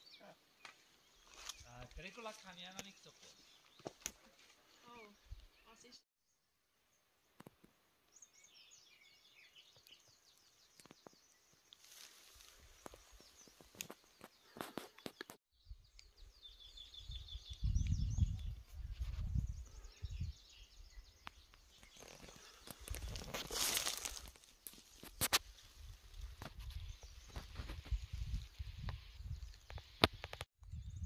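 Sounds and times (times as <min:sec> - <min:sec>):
small birds twittering: 0:00.0 - 0:06.4, 0:08.1 - 0:24.3
footsteps on dry leaves: 0:11.8 - 0:14.0, 0:21.8 - 0:26.6
wind rumble on microphone: 0:16.8 - 0:21.0, 0:25.8 - 0:31.0.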